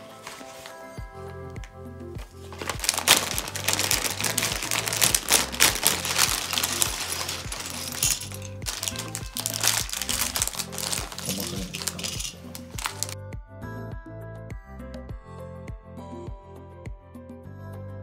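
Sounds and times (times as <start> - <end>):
background music with bass line: 1.0 - 18.0
plastic bag crinkling: 2.4 - 13.2
plastic bricks clattering: 2.5 - 13.2.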